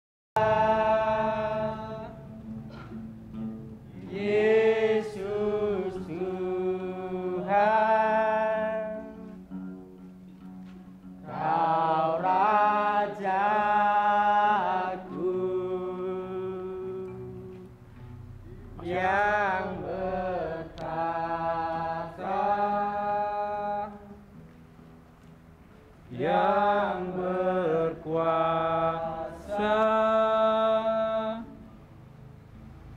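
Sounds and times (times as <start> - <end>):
woman singing slow song: 0.4 - 2.3.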